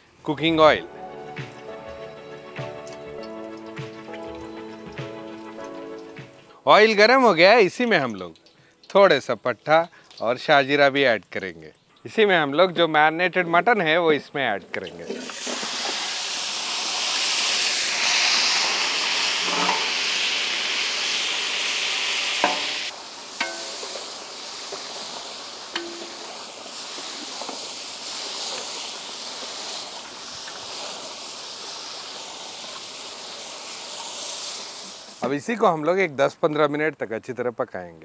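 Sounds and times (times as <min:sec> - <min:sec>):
meat sizzling in hot oil: 0:01.3 - 0:06.4, 0:14.8 - 0:35.5.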